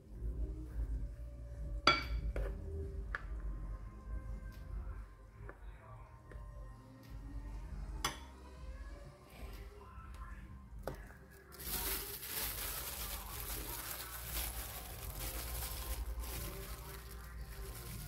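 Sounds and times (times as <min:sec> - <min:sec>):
plastic bag crinkling: 0:11.3 - 0:18.0.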